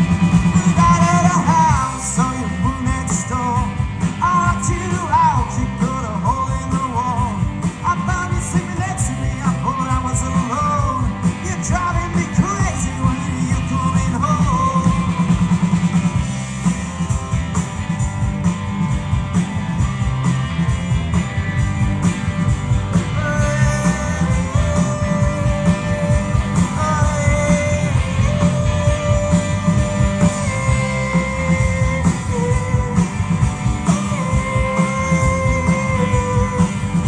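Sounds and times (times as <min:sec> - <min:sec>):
rock band playing live: 0:00.0 - 0:37.0
person singing: 0:00.4 - 0:15.3, 0:23.0 - 0:37.0.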